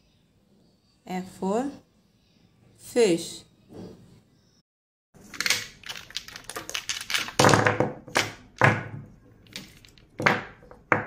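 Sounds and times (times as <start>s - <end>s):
plastic jars clicking: 5.2s - 11.0s.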